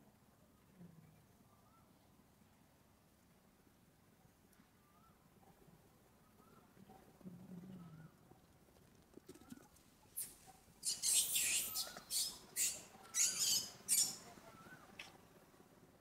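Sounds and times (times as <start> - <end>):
faint bird chirps: 0.5 - 2.2, 4.2 - 8.6, 9.2 - 15.2.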